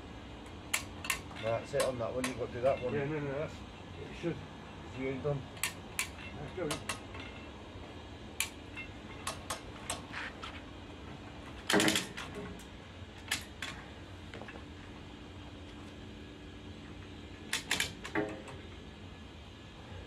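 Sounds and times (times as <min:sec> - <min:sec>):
metal clamps clicking and knocking: 0:00.7 - 0:02.9, 0:05.6 - 0:07.5, 0:11.7 - 0:12.7.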